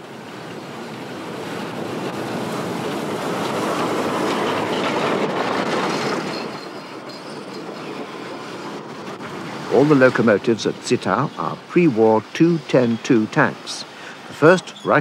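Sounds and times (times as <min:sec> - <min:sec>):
train wheels rattling over rails: 0:00.0 - 0:15.0
high wheel squeal: 0:03.7 - 0:15.0.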